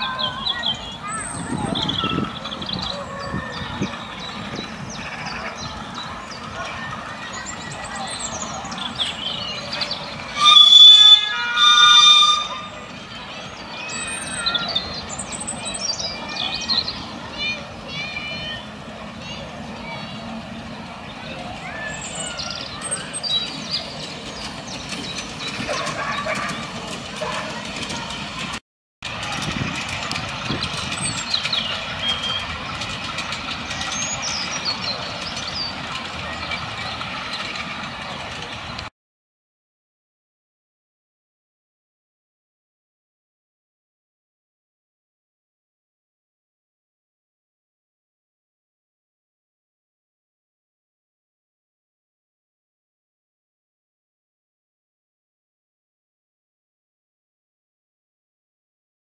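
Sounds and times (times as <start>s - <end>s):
miniature steam locomotive: 0.0s - 38.9s
wheels clattering on rails: 0.0s - 38.9s
steam locomotive whistle blasts: 10.3s - 12.8s.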